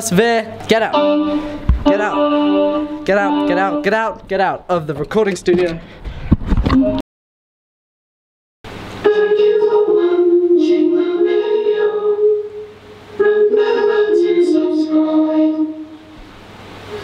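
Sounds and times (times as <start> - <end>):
synthesizer held chords: 0.6 - 4.3.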